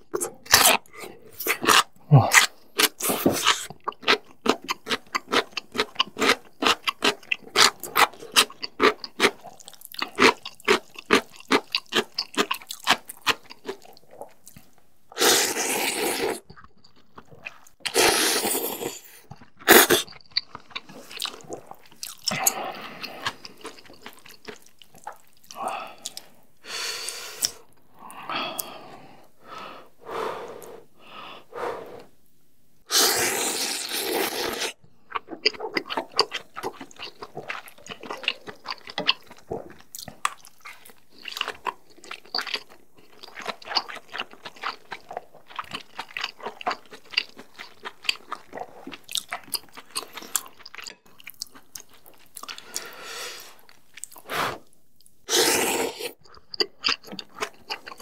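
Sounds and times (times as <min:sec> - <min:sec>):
person slurping noodles: 0:15.2 - 0:16.4, 0:17.8 - 0:20.1, 0:29.7 - 0:32.1, 0:32.9 - 0:34.8, 0:54.2 - 0:54.7, 0:55.3 - 0:56.2
wet chewing: 0:16.0 - 0:26.4, 0:33.7 - 0:58.0.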